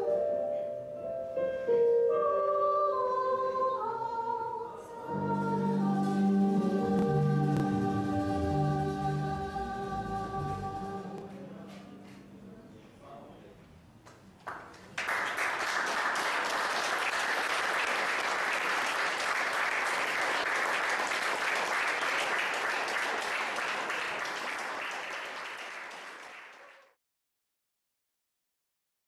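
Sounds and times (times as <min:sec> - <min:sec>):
audience applauding: 0:14.5 - 0:27.0.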